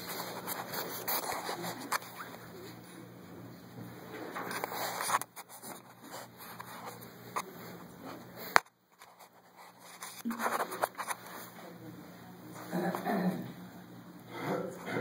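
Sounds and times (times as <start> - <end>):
rustling and scraping: 0.0 - 2.9, 4.1 - 11.8.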